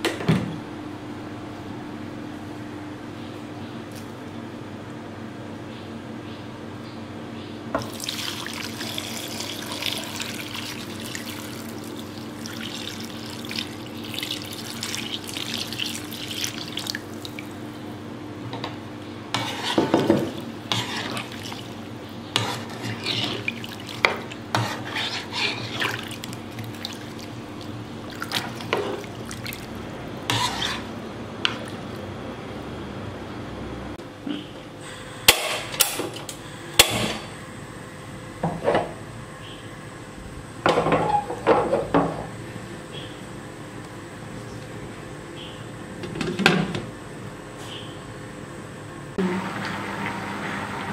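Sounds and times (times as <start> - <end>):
liquid pouring into a pan: 7.8 - 17.6
spatula stirring and scraping pan: 19.3 - 27.2, 28.3 - 29.1, 30.2 - 30.9.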